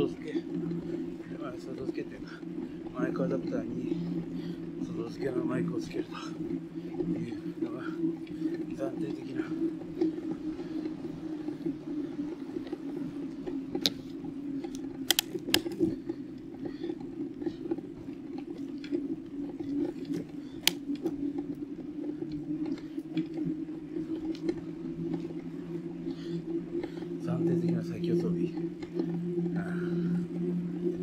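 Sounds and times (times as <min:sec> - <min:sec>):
bicycle tyres rolling on road: 0:00.0 - 0:31.0
sharp clicks: 0:14.7 - 0:16.0, 0:20.1 - 0:21.1.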